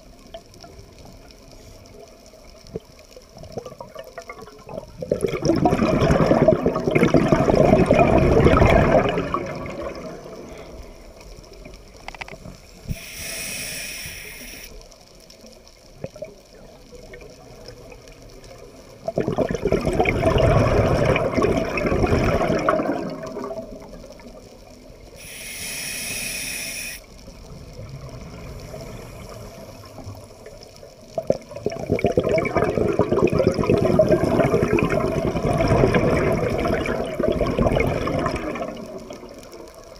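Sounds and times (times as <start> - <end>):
exhaled air bubbling underwater: 0.0 - 39.9
regulator inhale hiss: 12.6 - 14.8, 25.2 - 27.2.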